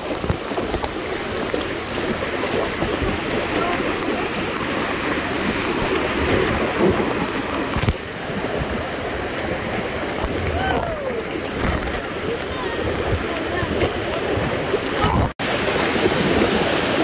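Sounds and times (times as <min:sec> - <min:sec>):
river rushing over rocks: 0:00.0 - 0:17.0.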